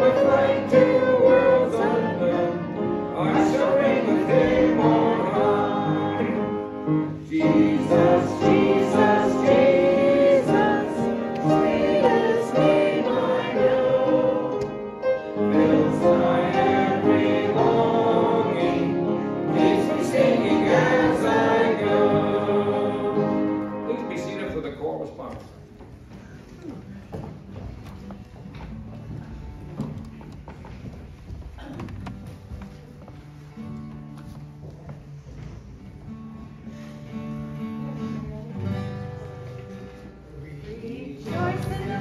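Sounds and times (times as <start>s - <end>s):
congregation singing a hymn: 0.0s - 24.6s, 40.6s - 42.0s.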